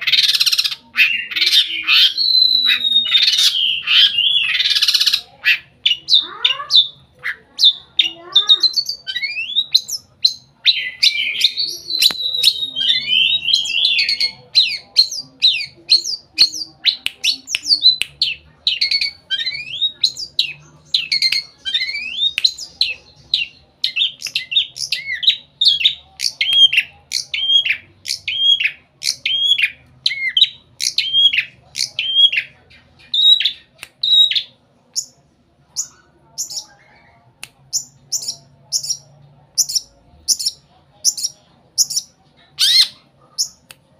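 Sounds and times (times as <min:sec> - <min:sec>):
shrike singing whistles: 0:01.9 - 0:05.1.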